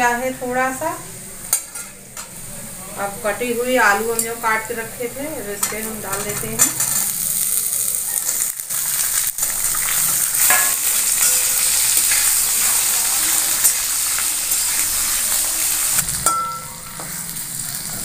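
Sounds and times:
potatoes sizzling in oil: 0:00.0 - 0:18.0.

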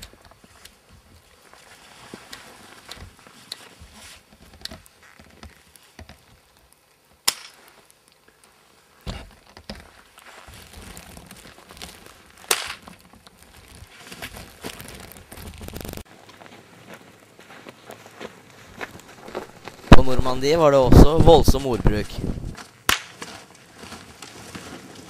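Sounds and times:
crunching and rustling in snow: 0:00.0 - 0:06.6, 0:07.6 - 0:25.0
sharp knocks or cracks: 0:12.5 - 0:13.0.

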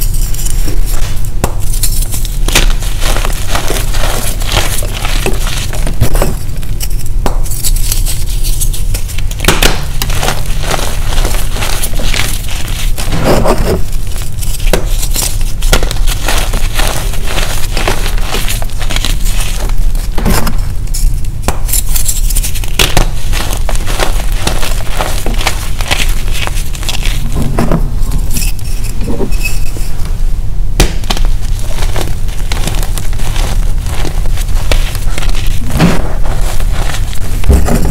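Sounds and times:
chalk block cracking: 0:00.0 - 0:19.8
chalk crunching between fingers: 0:00.0 - 0:20.1
steady low hum: 0:00.0 - 0:37.9.

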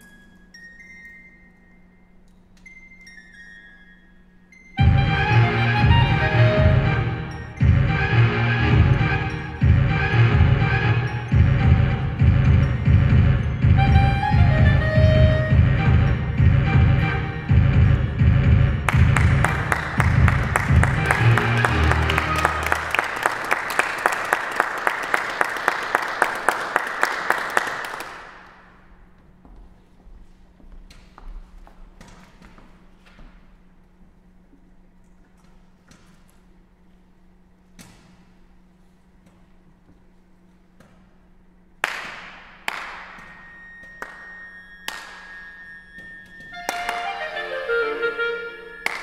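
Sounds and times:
low instrument notes: 0:04.7 - 0:24.3, 0:42.7 - 0:49.0
chamber ensemble playing: 0:04.8 - 0:18.0, 0:19.1 - 0:23.2, 0:44.9 - 0:49.0
hands clapping in rhythm: 0:18.8 - 0:28.6, 0:41.8 - 0:45.4, 0:46.6 - 0:47.3.

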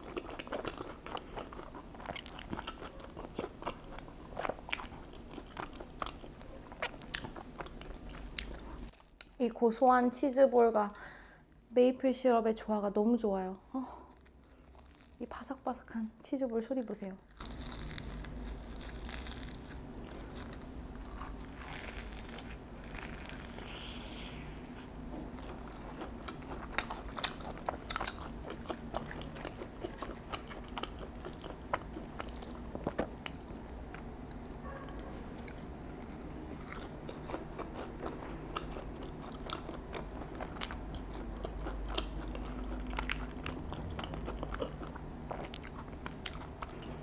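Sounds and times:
chewing: 0:00.0 - 0:09.4, 0:17.4 - 0:47.0
crunching crispy food: 0:14.0 - 0:15.6, 0:16.6 - 0:34.5.

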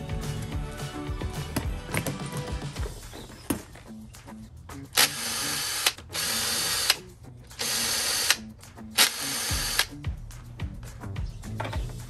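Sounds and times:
cordless drill bursts: 0:05.0 - 0:07.0, 0:07.6 - 0:08.4, 0:09.0 - 0:09.9.

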